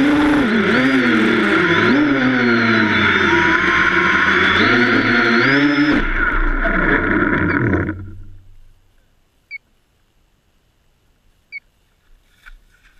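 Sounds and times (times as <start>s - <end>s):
drone motors whining: 0.0s - 8.9s.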